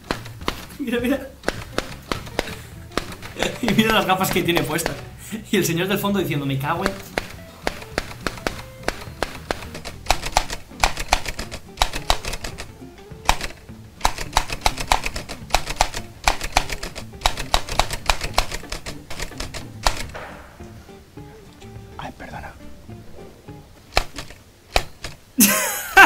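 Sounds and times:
typewriter keys clacking: 0.0 - 5.1, 6.8 - 20.3, 23.9 - 25.2
background music: 0.0 - 26.0.

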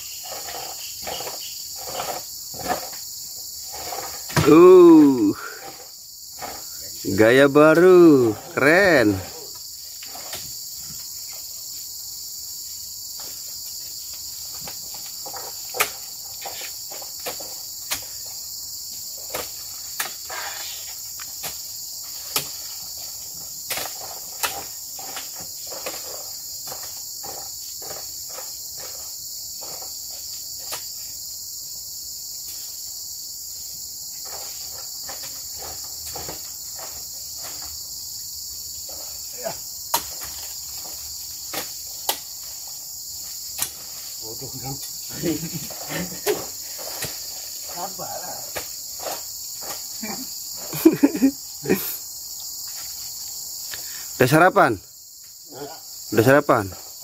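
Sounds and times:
high-pitched insect chorus: 0.0 - 57.0
fruit bunches thudding on truck: 4.2 - 5.3.

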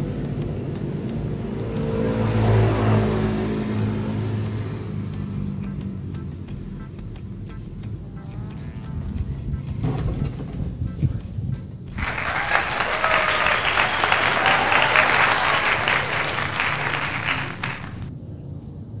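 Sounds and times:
crowd applause: 12.0 - 18.1.

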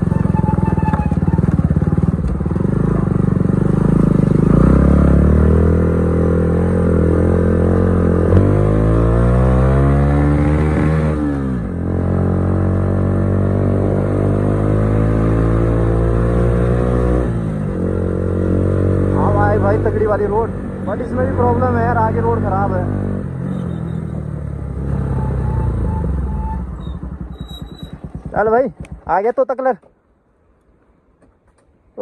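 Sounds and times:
motorcycle engine accelerating: 0.0 - 29.4.

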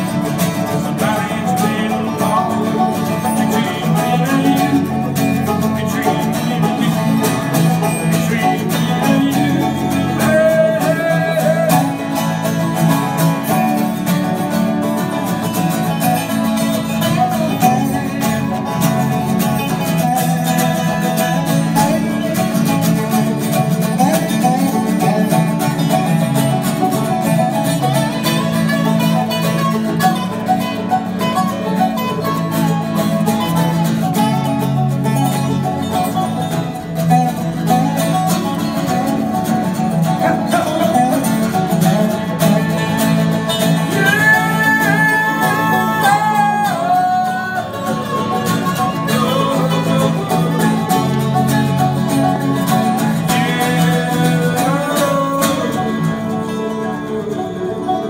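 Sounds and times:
lap slide guitar: 0.0 - 58.0
picked banjo: 0.0 - 58.0
strummed acoustic guitar: 0.0 - 58.0.

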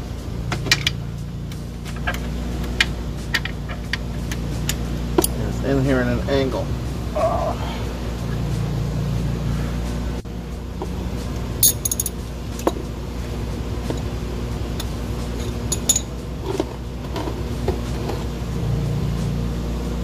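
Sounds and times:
steady low hum: 0.0 - 20.0
wrench clinking on metal: 11.6 - 12.2, 14.8 - 16.1.

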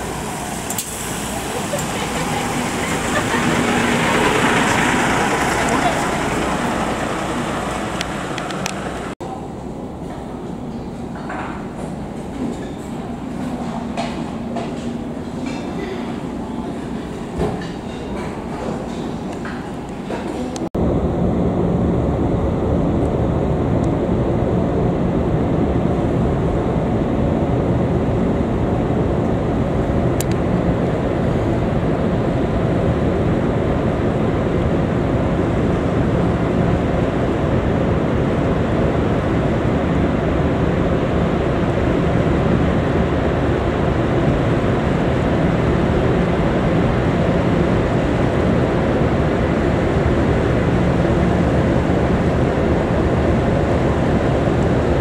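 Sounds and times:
even rushing noise: 0.0 - 9.2
low engine drone: 0.0 - 12.5, 19.9 - 55.0.

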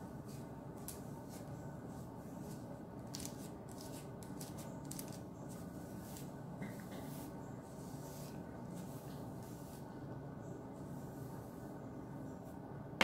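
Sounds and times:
low background hum: 0.0 - 13.0
brush swishing through wet hair: 7.0 - 9.9.

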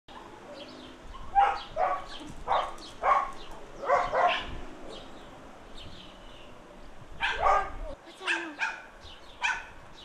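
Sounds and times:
dog barking: 1.2 - 4.6, 7.2 - 9.8.

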